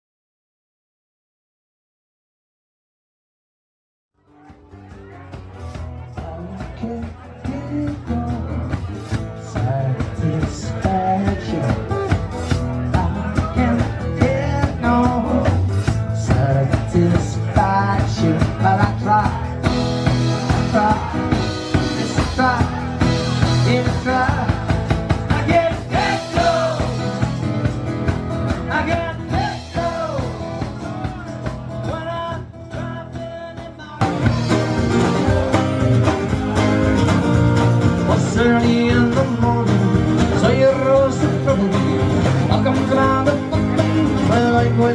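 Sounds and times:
strummed acoustic guitars: 4.2s - 44.9s
man singing: 4.4s - 27.4s, 28.5s - 44.9s
drum kit: 4.4s - 44.9s.

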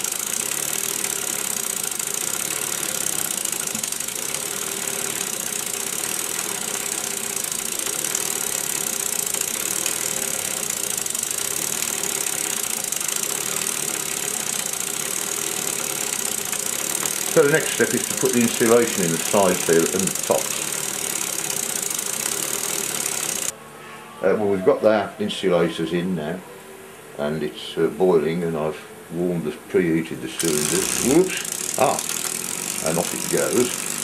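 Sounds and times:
model steam engine running: 0.0s - 23.5s, 30.4s - 34.0s
worm drive turning gear wheel: 0.0s - 23.5s, 30.4s - 34.0s
steam hissing: 30.4s - 34.0s.

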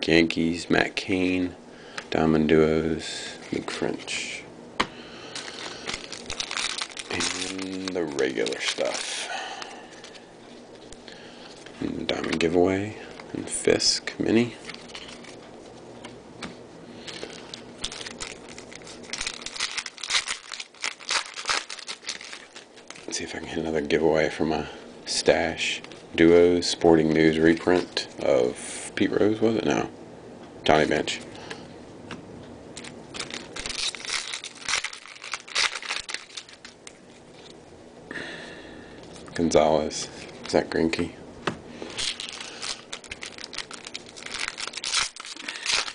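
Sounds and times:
foil wrapper crinkling: 5.2s - 15.4s, 17.0s - 23.3s, 32.8s - 37.6s, 41.8s - 45.9s.

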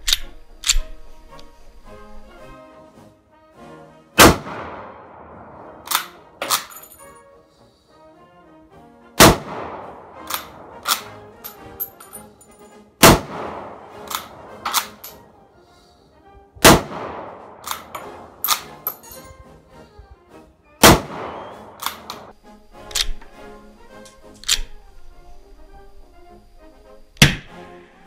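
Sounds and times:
rifle bolt clacking: 0.0s - 1.5s, 5.8s - 7.2s, 10.2s - 12.7s, 14.0s - 15.2s, 17.6s - 19.3s, 21.8s - 22.3s, 22.9s - 23.3s, 24.0s - 24.8s
rifle shots echoing: 4.2s - 6.9s, 9.2s - 12.0s, 13.0s - 15.2s, 16.6s - 19.1s, 20.8s - 22.3s, 27.2s - 27.5s.

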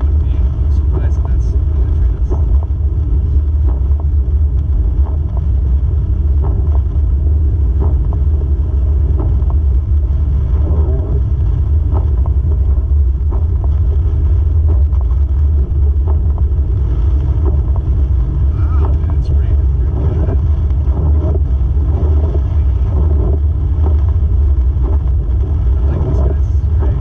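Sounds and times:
car engine and tyres rumbling: 0.0s - 27.0s
light ticks: 11.8s - 27.0s.

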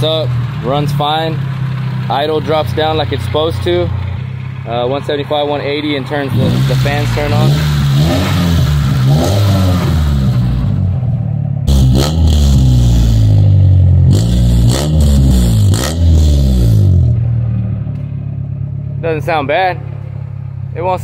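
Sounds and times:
car engine revving: 0.0s - 21.0s.

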